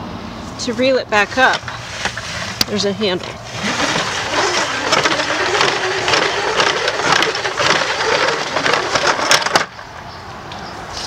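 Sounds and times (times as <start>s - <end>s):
hose reel cranking and rattling: 1.3s - 9.8s.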